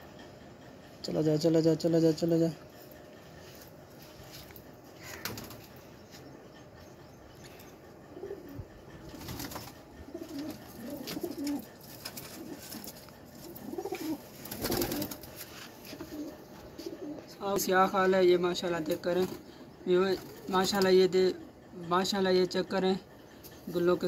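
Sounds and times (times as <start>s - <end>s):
pigeons cooing: 4.8s - 22.2s
pigeon wings flapping: 5.0s - 5.7s, 9.1s - 16.3s.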